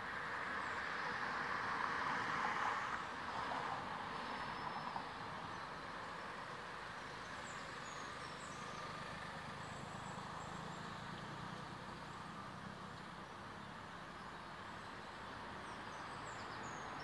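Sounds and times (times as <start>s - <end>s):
distant road traffic rumble: 0.0s - 17.0s.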